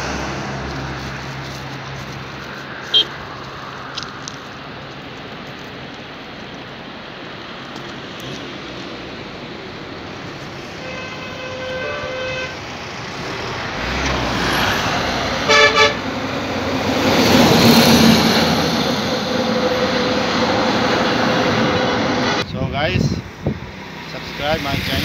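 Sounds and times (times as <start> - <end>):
traffic engine and tyre noise: 0.0 - 25.0
vehicle horn tooting: 2.9 - 3.2, 10.8 - 12.6, 15.4 - 16.0.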